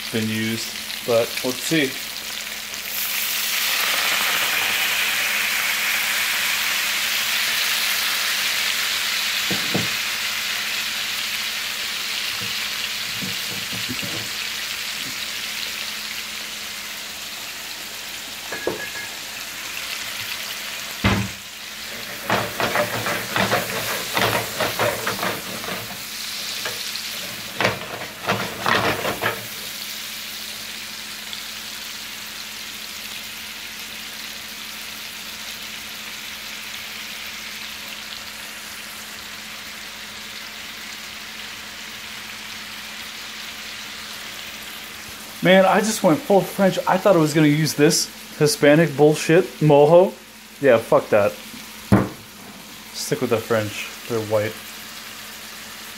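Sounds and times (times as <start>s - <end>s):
meat sizzling in a frying pan: 0.0s - 55.9s
sharp knocks and clatters: 22.1s - 26.0s, 26.7s - 29.5s.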